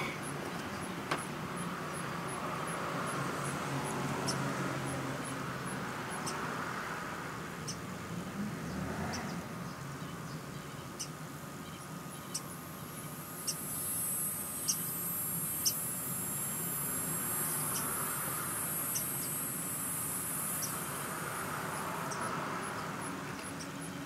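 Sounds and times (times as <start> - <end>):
high-pitched insect buzzing: 11.0 - 24.0.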